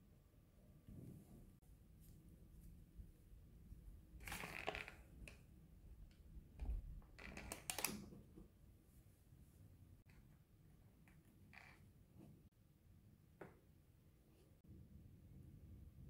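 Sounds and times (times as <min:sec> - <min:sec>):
paint tube crinkling: 0:04.2 - 0:05.4, 0:06.6 - 0:08.3.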